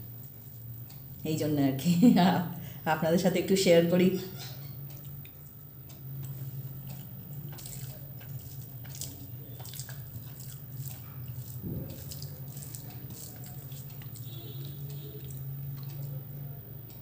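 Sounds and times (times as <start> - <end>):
steady low hum: 0.0 - 17.0
person chewing food: 4.3 - 17.0.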